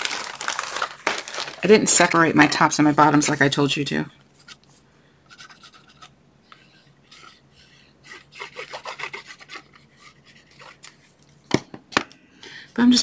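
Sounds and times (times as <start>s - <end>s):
cardstock rubbing on table: 5.3s - 11.0s.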